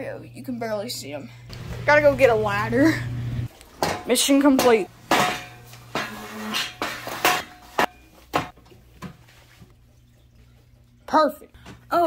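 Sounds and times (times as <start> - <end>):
metal step stool clattering: 3.8 - 8.5
sharp metallic clanks: 3.8 - 8.5.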